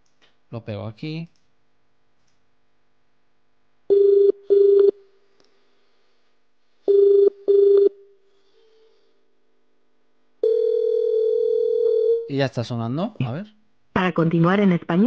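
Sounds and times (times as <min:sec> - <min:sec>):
telephone ringing tone: 0:03.9 - 0:05.0, 0:06.9 - 0:07.9, 0:10.4 - 0:12.3.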